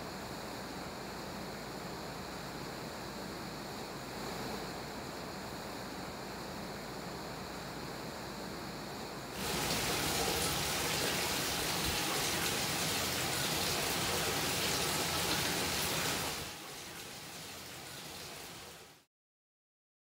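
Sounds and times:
water pouring into stone basin: 0:09.4 - 0:19.0.

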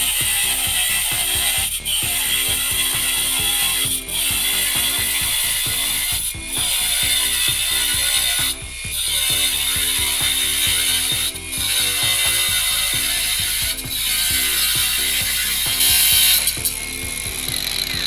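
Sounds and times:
angle grinder cutting steel: 0:00.0 - 0:18.0
music with a steady beat: 0:00.0 - 0:18.0.

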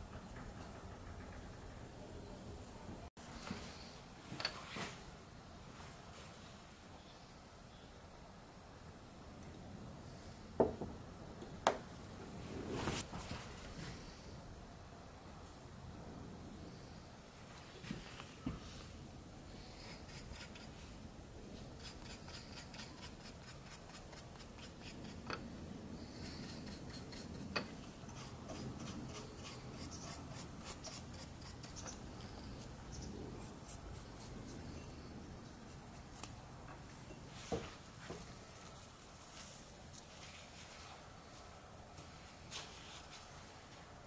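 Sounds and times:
paintbrush scratching: 0:21.7 - 0:25.3, 0:28.1 - 0:34.8.

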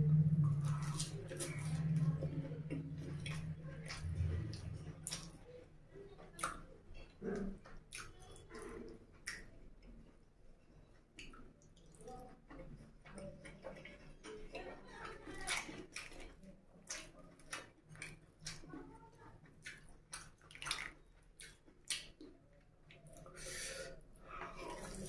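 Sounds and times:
low hum: 0:00.0 - 0:05.6
food squishing: 0:00.0 - 0:25.0
wet chewing and lip smacks: 0:00.3 - 0:05.5, 0:06.2 - 0:14.6, 0:19.5 - 0:23.5.

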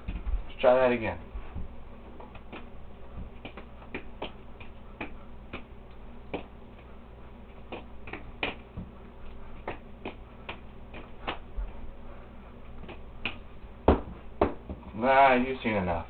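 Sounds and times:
steady low hum: 0:00.0 - 0:16.0
balls slapping into hand: 0:01.5 - 0:11.7, 0:12.6 - 0:15.0.

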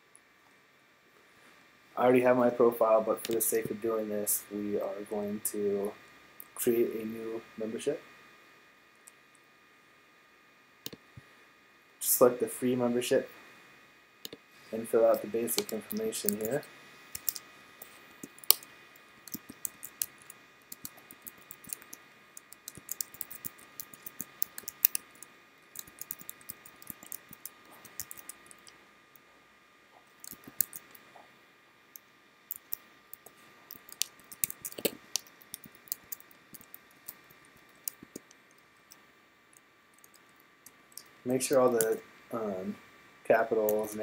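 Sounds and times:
faint steady whine: 0:00.0 - 0:44.0
keyboard keys clicking: 0:19.3 - 0:25.2, 0:25.8 - 0:28.7, 0:30.2 - 0:31.0, 0:32.5 - 0:38.2.

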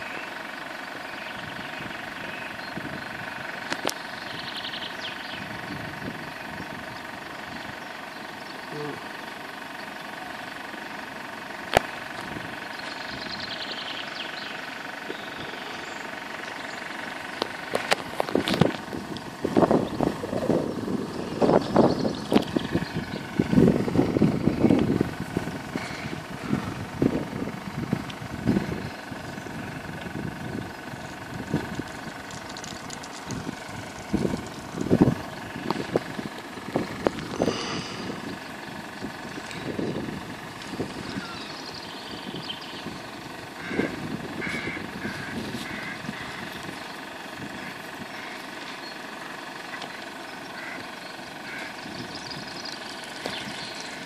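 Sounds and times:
wind buffeting microphone: 0:01.4 - 0:07.9, 0:17.5 - 0:48.3, 0:51.8 - 0:54.0.

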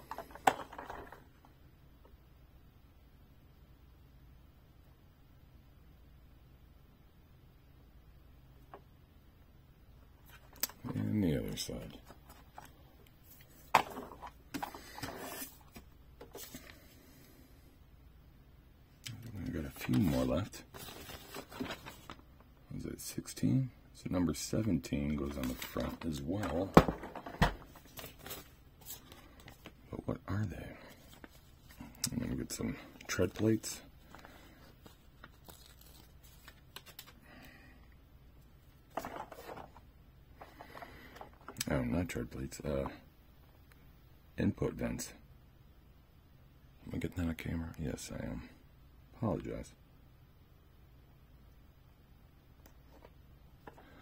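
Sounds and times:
small clicks and crinkles: 0:33.0 - 0:37.2
plastic rustles and clicks: 0:38.9 - 0:39.8.

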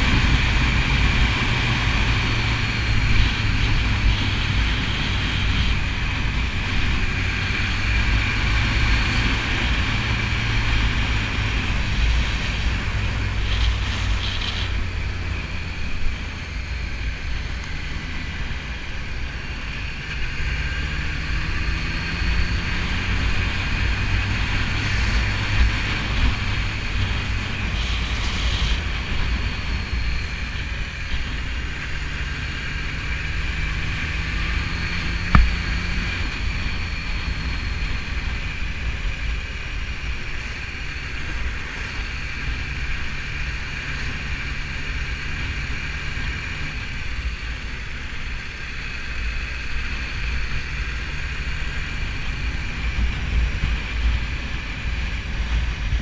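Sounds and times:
motorcycle engine running: 0:00.0 - 0:56.0
wind rushing over microphone: 0:00.0 - 0:56.0
sharp tap: 0:35.3 - 0:35.6.

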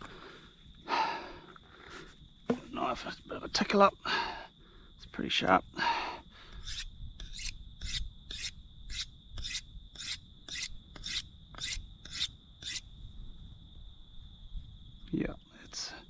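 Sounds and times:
knife sharpening rasping strokes: 0:06.6 - 0:12.8.

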